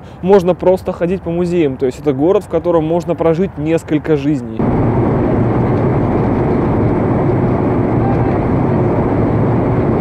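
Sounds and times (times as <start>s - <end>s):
jet airliner cabin drone: 4.6s - 10.0s.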